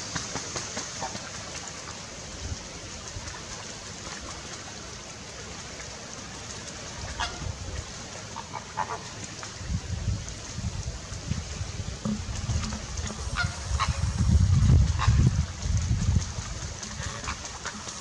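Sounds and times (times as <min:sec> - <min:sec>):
water splashing: 0:00.0 - 0:18.0
flamingos honking: 0:07.1 - 0:07.5, 0:08.3 - 0:09.1, 0:12.6 - 0:15.4, 0:16.8 - 0:18.0.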